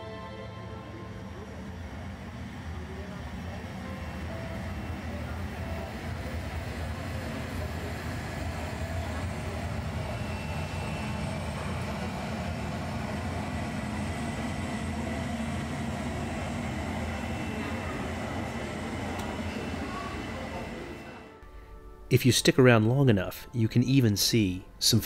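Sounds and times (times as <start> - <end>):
jet engine roar: 1.4 - 21.4.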